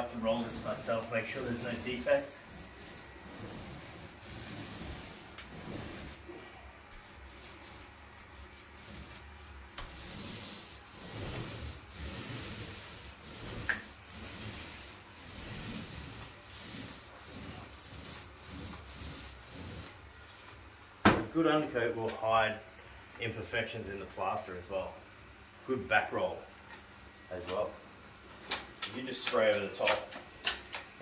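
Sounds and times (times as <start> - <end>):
paint roller swishing on ceiling: 0.0 - 20.6.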